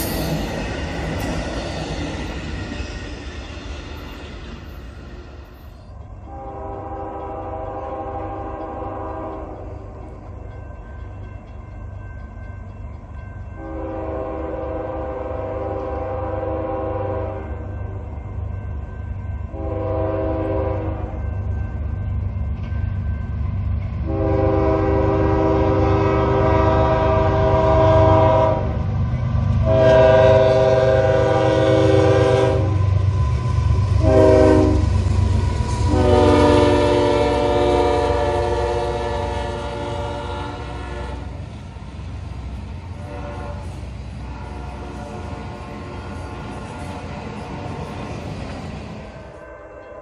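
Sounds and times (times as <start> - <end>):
train air horn blasts: 6.3 - 9.6, 13.6 - 17.7, 19.5 - 21.2, 24.0 - 28.8, 29.6 - 32.9, 34.0 - 41.4, 43.0 - 47.7.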